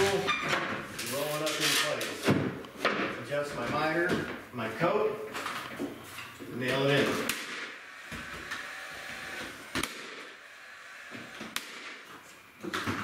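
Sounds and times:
nailer firing clicks: 9.4s - 10.3s, 11.1s - 12.1s.

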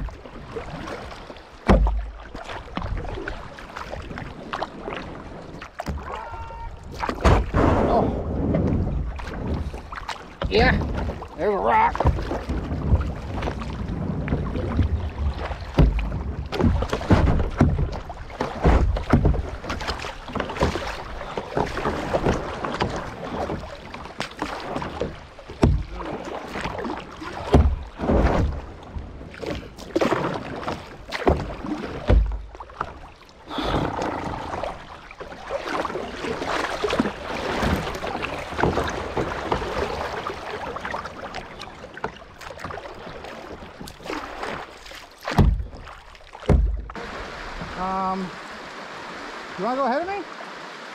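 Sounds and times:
paddles splashing in water: 0.0s - 50.9s
low thumps: 11.9s - 19.8s, 45.2s - 47.8s.

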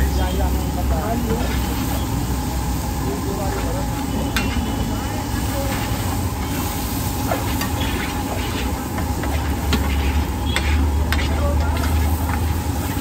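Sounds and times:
food sizzling: 0.0s - 13.0s
ladle scraping pan: 5.6s - 13.0s.

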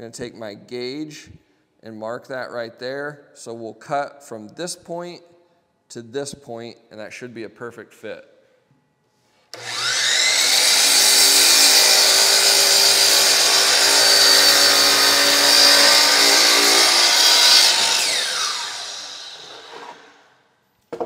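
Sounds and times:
circular saw cutting wood: 9.5s - 20.3s.

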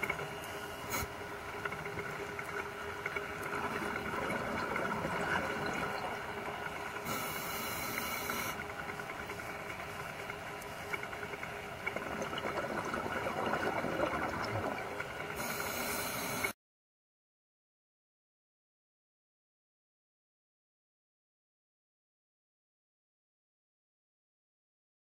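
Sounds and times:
underwater hissing water: 0.8s - 1.2s, 7.0s - 8.6s, 15.4s - 16.5s.

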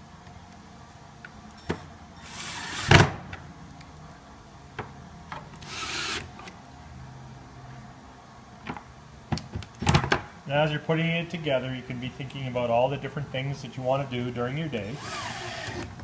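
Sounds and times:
cordless drill driving screws: 5.6s - 6.3s, 15.0s - 16.0s.

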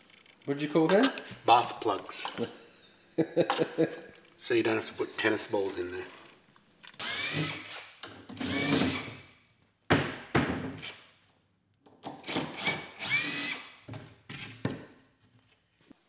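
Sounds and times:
cordless drill motor whining: 7.0s - 7.8s, 8.4s - 9.2s, 12.2s - 13.6s.

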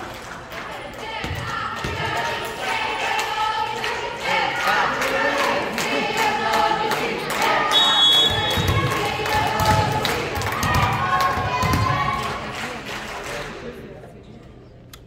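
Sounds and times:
group of voices singing: 0.8s - 12.4s.

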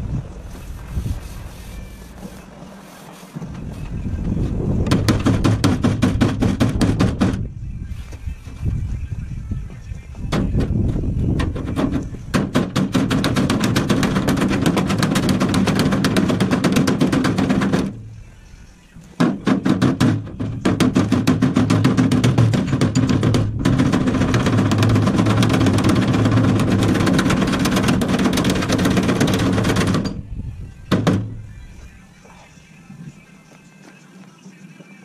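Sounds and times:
air hammer rattling on steel panel: 4.6s - 7.5s, 10.3s - 18.0s, 19.2s - 30.3s.

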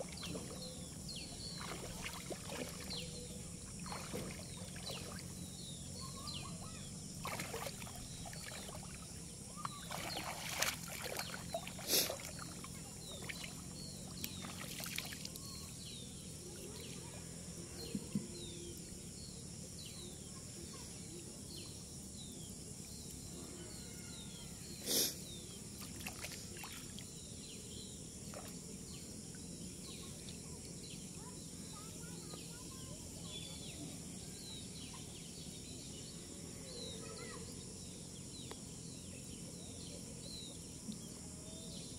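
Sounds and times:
small birds chirping: 0.0s - 41.9s
shallow water sloshing and splashing: 1.5s - 5.4s, 7.2s - 9.2s, 9.8s - 15.4s.

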